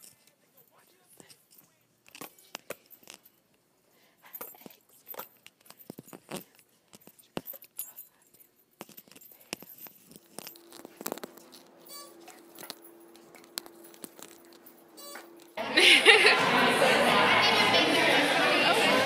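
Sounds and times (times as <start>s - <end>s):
phone rustling against clothing: 0.0s - 15.6s
light jingling: 4.2s - 15.6s
steady low hum: 6.5s - 17.8s.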